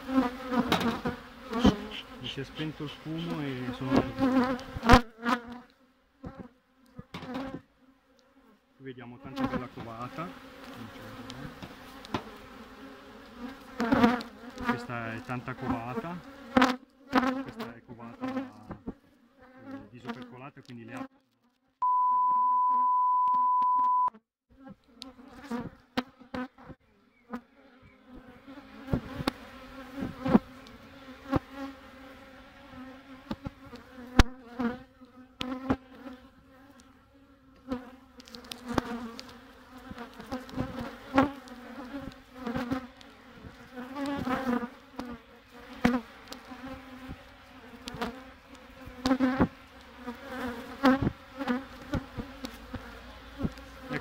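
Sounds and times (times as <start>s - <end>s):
honeybees buzzing: 0.0s - 21.1s, 24.8s - 54.0s
loud steady beep: 21.8s - 24.1s.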